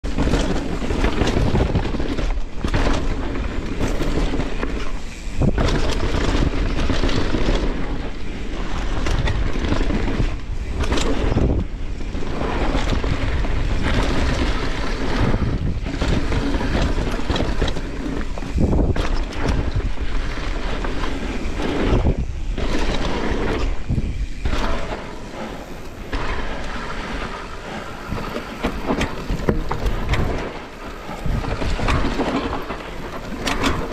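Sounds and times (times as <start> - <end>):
bike knocks and rattles: 0.0 - 33.9
tyres rushing on dirt: 0.0 - 33.9
wind buffeting microphone: 0.0 - 33.9.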